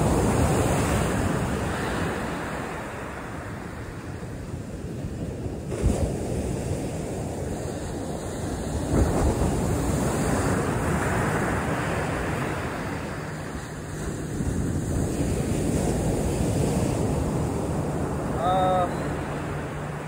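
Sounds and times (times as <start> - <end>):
ocean surf breaking: 0.0 - 20.0
wind buffeting microphone: 0.0 - 20.0.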